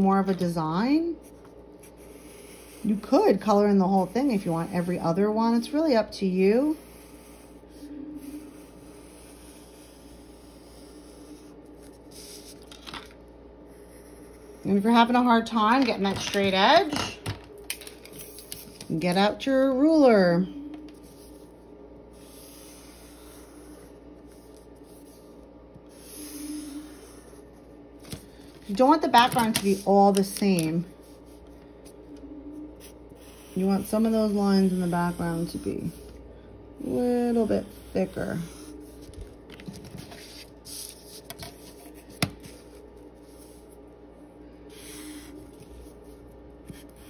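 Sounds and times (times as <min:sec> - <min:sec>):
soft rubbing on paper: 0:06.5 - 0:12.6, 0:20.9 - 0:27.6, 0:37.3 - 0:43.9
marker scratching on paper: 0:06.7 - 0:12.6.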